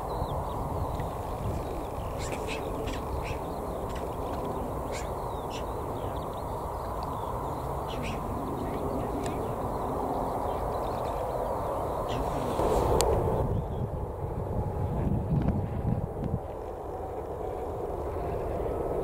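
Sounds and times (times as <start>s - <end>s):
jet engines rumbling at low power: 0.0s - 19.0s
short bird calls: 1.6s - 9.8s.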